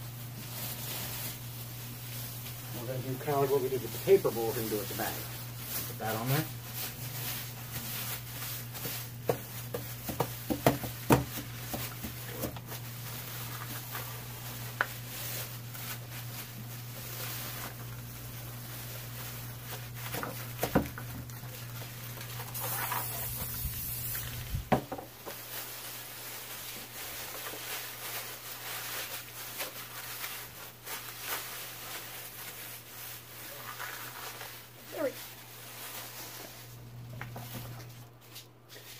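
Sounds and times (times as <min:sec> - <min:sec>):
plastic bags crinkling: 0:00.0 - 0:38.9.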